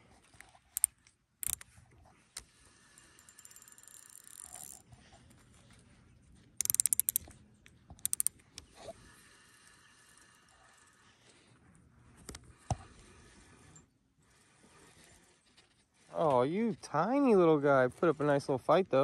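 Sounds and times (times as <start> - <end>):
spinning reel clicking: 0.8 - 1.6, 3.0 - 4.8, 6.6 - 7.3, 8.0 - 8.4.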